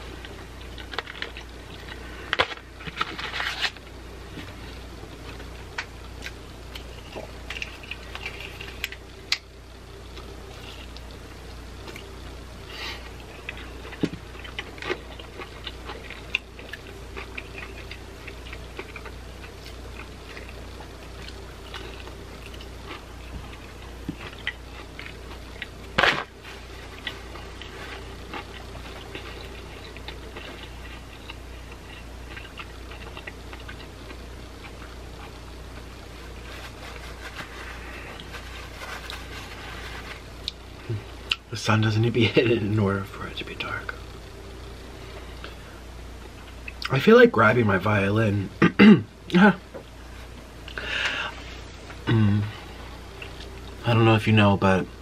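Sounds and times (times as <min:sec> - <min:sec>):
chewing crunchy fried chicken: 0:00.0 - 0:41.5, 0:51.9 - 0:53.8
steady low hum: 0:00.0 - 0:55.0.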